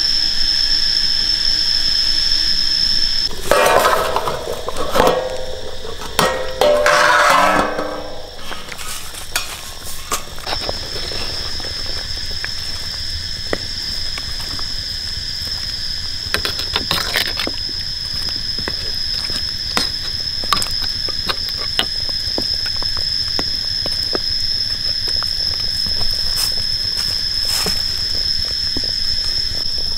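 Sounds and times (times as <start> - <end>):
metal spatula scraping a wok: 3.3 - 10.6.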